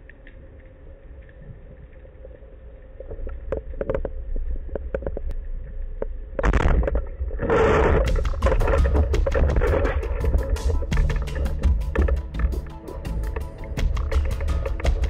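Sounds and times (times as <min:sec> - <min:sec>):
underwater rumble: 0:00.0 - 0:15.0
underwater clicks: 0:03.0 - 0:15.0.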